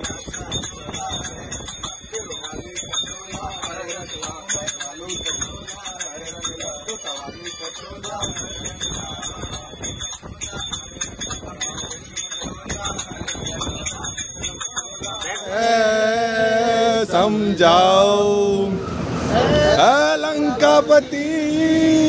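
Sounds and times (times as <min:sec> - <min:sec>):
hand cymbals jingling: 0:00.0 - 0:18.4
voices singing devotional song: 0:00.0 - 0:22.0
man singing loudly: 0:15.2 - 0:22.0.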